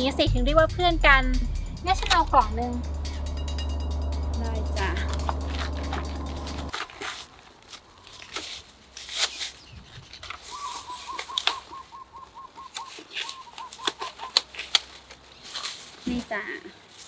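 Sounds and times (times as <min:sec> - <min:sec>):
thin plastic bag crinkling: 0:05.4 - 0:09.6
bird calling short notes: 0:09.3 - 0:14.4.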